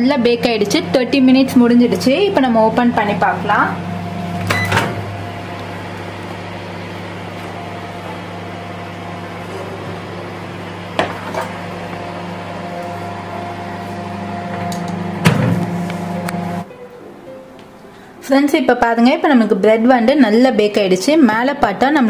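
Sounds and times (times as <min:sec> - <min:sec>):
microwave oven fan humming: 0:00.0 - 0:16.7.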